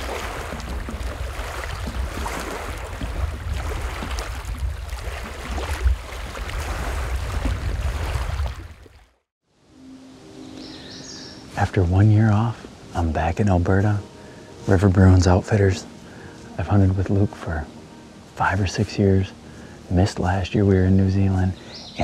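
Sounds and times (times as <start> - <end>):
rushing wind: 0.0 - 8.8
water rushing past boat: 0.0 - 9.3.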